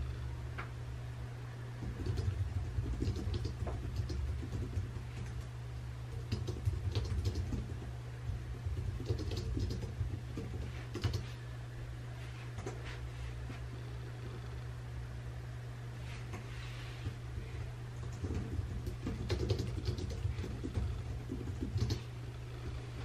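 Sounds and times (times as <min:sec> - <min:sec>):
steady low hum: 0:00.0 - 0:23.0
hands tapping and clicking at desk: 0:01.8 - 0:05.4, 0:06.2 - 0:11.3, 0:17.4 - 0:22.0.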